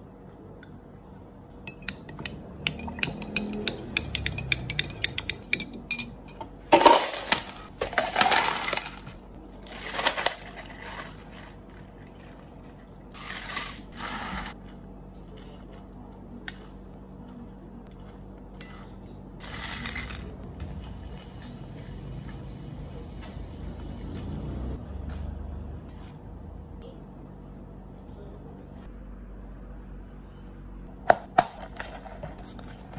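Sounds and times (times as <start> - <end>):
ice cubes clattering into cups: 6.7 - 12.3, 13.1 - 14.6.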